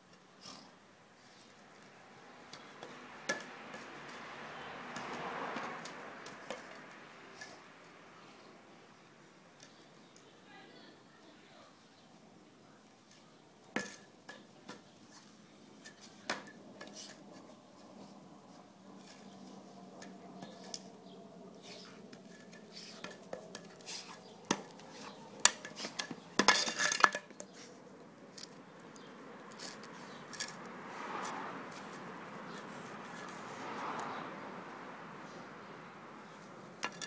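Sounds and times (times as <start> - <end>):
soft scratchy rustle: 21.6 - 26.3.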